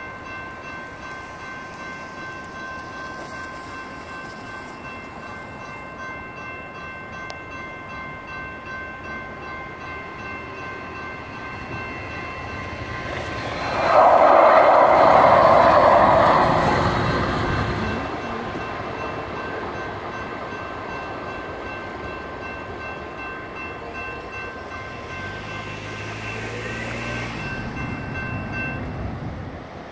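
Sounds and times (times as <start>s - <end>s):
electronic crossing bells ringing: 0.0s - 16.4s, 17.6s - 29.1s
light rail train passing: 0.0s - 29.9s
car engine: 12.9s - 17.7s.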